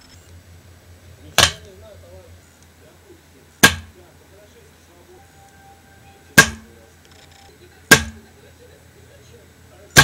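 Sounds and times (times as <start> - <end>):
dart striking target: 1.4 - 1.7, 3.6 - 3.9, 6.4 - 6.8, 7.9 - 8.2.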